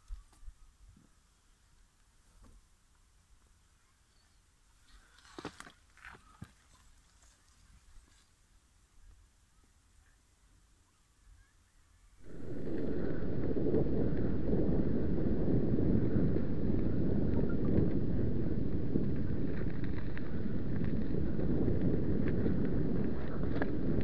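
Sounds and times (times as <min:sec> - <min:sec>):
brief rustle: 0:04.8 - 0:08.4
wind rumbling on microphone: 0:12.2 - 0:24.0.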